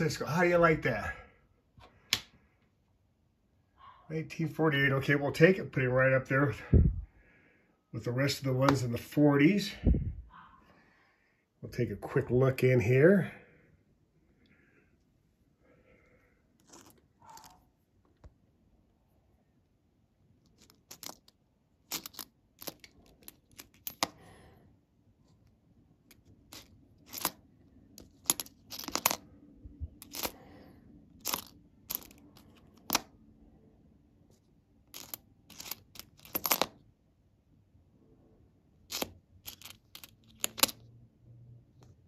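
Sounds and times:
coins clicking together: 0:20.6 - 0:21.3, 0:21.9 - 0:24.2, 0:26.5 - 0:27.4, 0:28.0 - 0:29.2, 0:30.0 - 0:30.4, 0:31.2 - 0:33.0, 0:34.9 - 0:36.7, 0:38.9 - 0:40.8.

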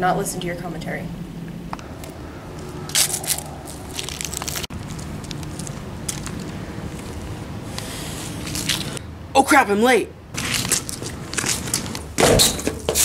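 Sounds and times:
footsteps crunching dry leaves: 0:02.0 - 0:09.0, 0:10.4 - 0:13.0
shoe scuffs and clicks: 0:10.4 - 0:13.0.

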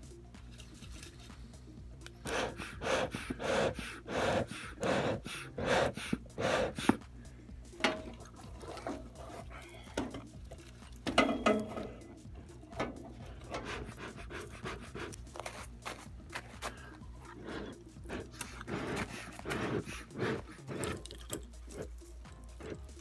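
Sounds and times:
bellows puffing air: 0:02.2 - 0:07.3, 0:12.8 - 0:21.9.

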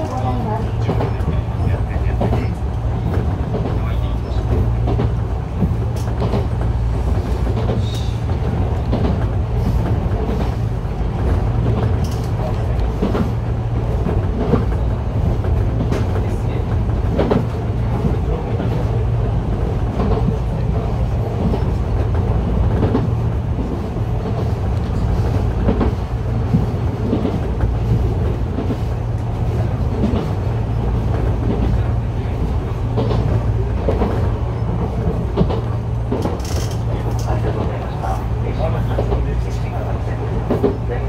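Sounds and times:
train low rumble: 0:00.0 - 0:41.0
wheels clicking on track: 0:19.6 - 0:41.0.

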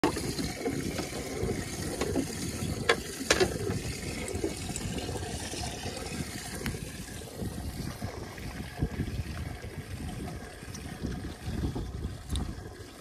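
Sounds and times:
water sloshing against hull: 0:00.0 - 0:13.0.

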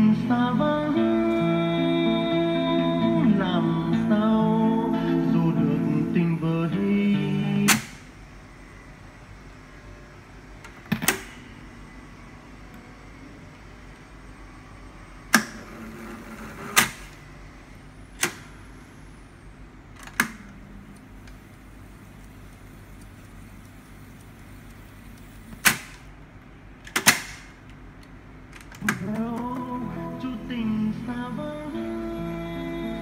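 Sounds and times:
low steady hum: 0:00.0 - 0:33.0
tape recorder controls clunking: 0:07.6 - 0:08.1, 0:26.8 - 0:29.9.

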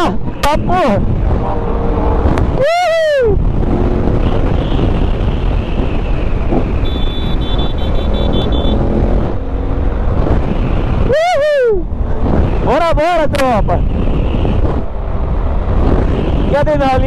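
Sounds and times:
wind rush on microphone: 0:00.0 - 0:17.0
person whooping shout: 0:02.6 - 0:03.4, 0:11.1 - 0:11.9.

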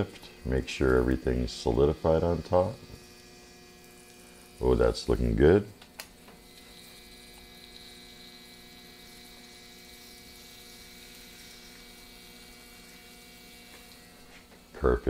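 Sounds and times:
electrical hum: 0:00.0 - 0:15.0
eggs sizzling on a griddle: 0:03.0 - 0:04.6, 0:06.4 - 0:14.4.

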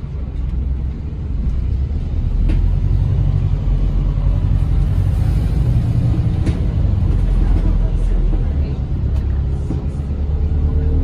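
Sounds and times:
bus engine rumble: 0:00.0 - 0:11.0.

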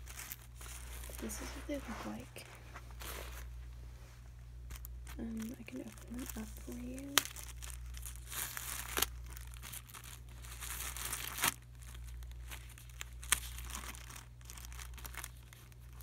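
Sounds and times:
plastic wrapper crinkling: 0:00.0 - 0:03.5, 0:04.6 - 0:16.0
wrapper snaps: 0:04.7 - 0:16.0.

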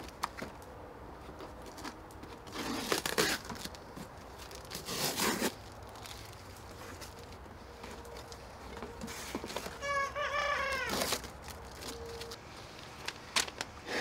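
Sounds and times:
cardboard box tearing: 0:02.4 - 0:06.1, 0:10.8 - 0:12.0.

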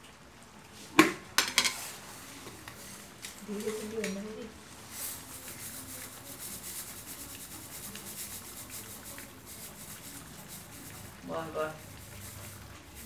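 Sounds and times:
sugar pouring: 0:01.4 - 0:13.0
pickle hissing in a wok: 0:04.7 - 0:13.0.

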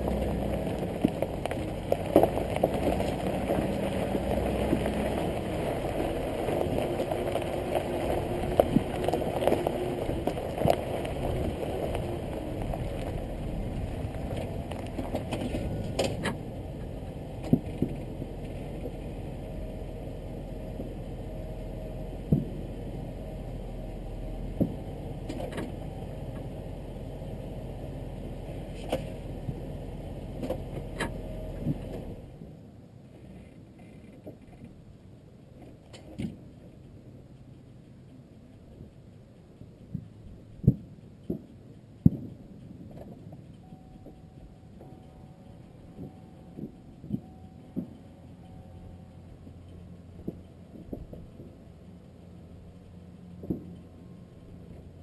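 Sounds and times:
stones clicking and popping: 0:00.0 - 0:18.5
tyres crunching on gravel: 0:00.0 - 0:19.4
truck engine running low: 0:00.0 - 0:33.8, 0:34.4 - 0:55.0.

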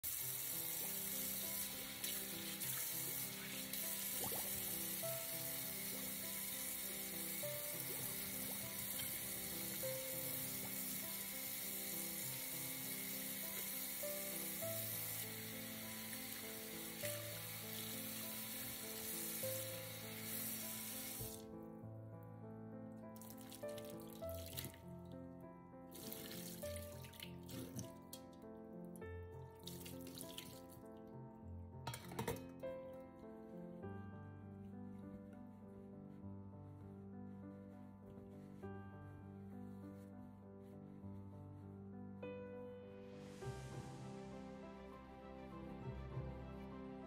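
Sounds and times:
faucet running into sink: 0:00.0 - 0:21.4, 0:23.2 - 0:24.8, 0:25.9 - 0:28.3, 0:29.6 - 0:30.7
background music: 0:00.0 - 0:47.0
hands washing under water: 0:00.1 - 0:21.4, 0:23.2 - 0:24.8, 0:25.9 - 0:28.3, 0:29.6 - 0:30.7.

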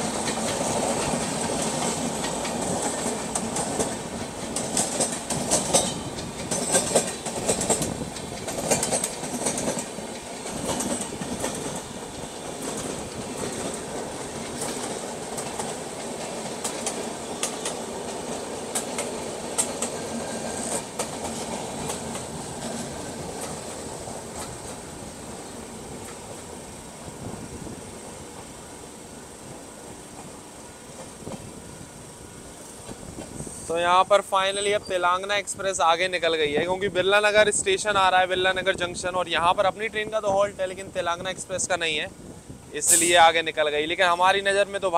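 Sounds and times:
train wheels clacking over rail joints: 0:00.0 - 0:26.4
train rolling rumble: 0:00.0 - 0:44.9.

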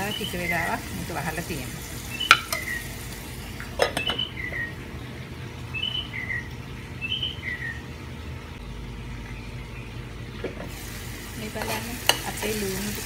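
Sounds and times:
bird calling: 0:02.0 - 0:03.0, 0:03.8 - 0:05.0, 0:05.6 - 0:08.0.

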